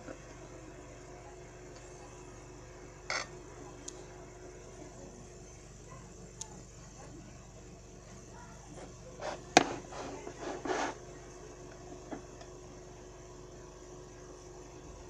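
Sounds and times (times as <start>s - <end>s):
faint steady hum: 0.0s - 15.0s
knife scraping and rubbing: 8.8s - 11.0s.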